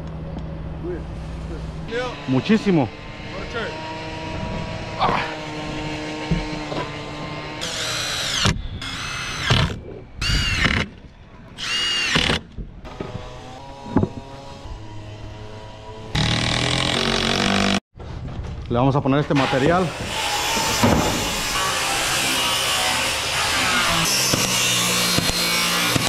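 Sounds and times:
impact driver driving screws: 11.6 - 12.4.

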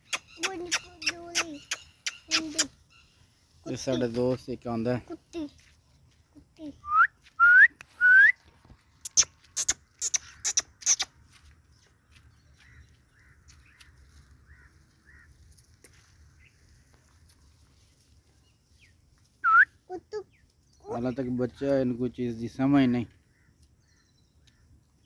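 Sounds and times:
sharp clicks: 0.0 - 2.8, 9.0 - 11.2
person whistling: 6.9 - 8.4, 19.4 - 19.7.

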